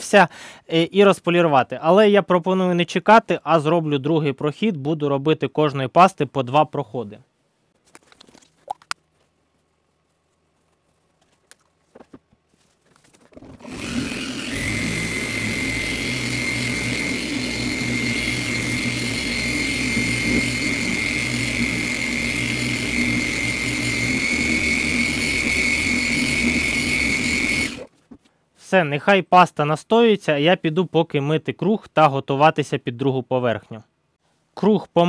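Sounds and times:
electric polisher whining: 0:13.4 - 0:27.9.

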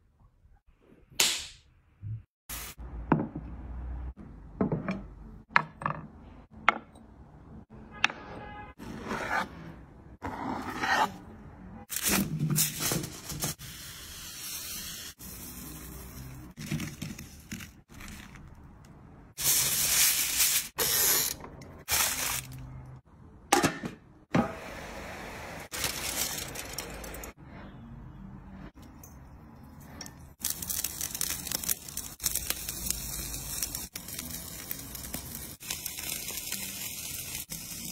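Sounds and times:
food rustling and scraping: 0:25.7 - 0:27.4.

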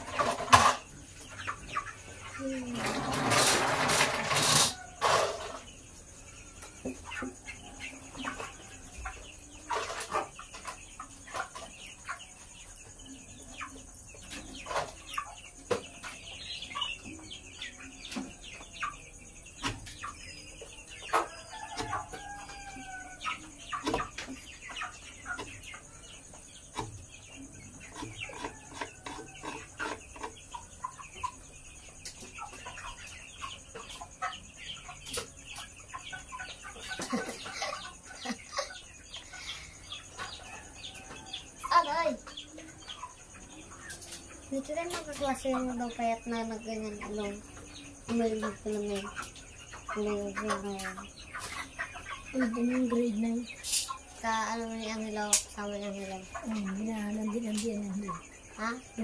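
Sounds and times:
chickens clucking: 0:00.0 - 0:59.0.

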